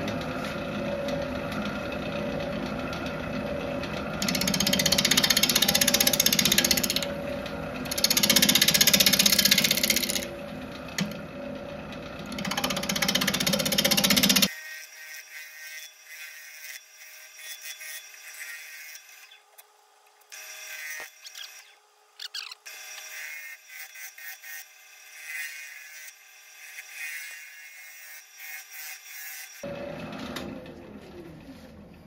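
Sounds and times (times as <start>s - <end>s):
lathe gouge scraping wood: 1.5s - 14.5s.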